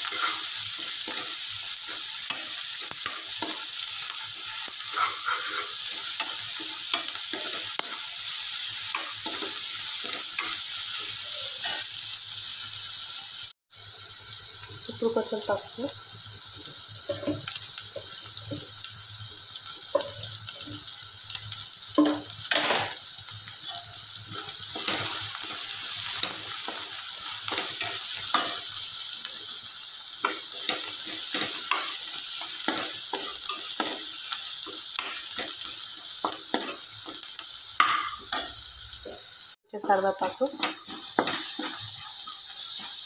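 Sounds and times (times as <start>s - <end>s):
steel spoon scraping pan: 0.0s - 8.1s
vegetables sizzling in oil: 0.0s - 43.0s.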